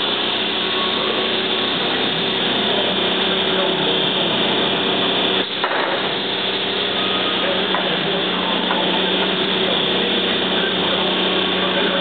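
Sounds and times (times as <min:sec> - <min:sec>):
machinery droning and humming: 0:00.0 - 0:12.0.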